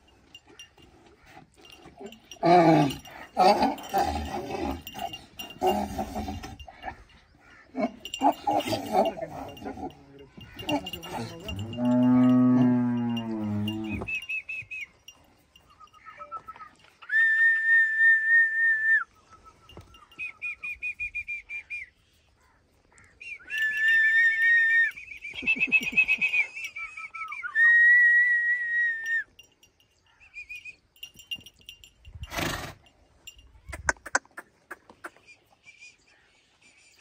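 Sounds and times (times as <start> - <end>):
high-pitched whistling: 23.2 - 29.3.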